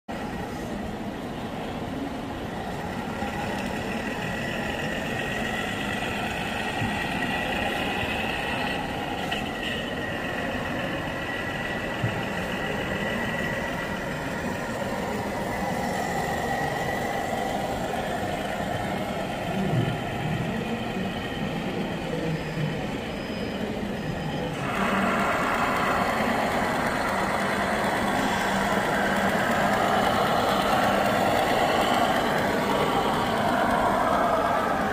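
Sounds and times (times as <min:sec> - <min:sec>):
exhibition hall noise: 0:00.1 - 0:34.9
model truck diesel engine running: 0:24.6 - 0:34.9.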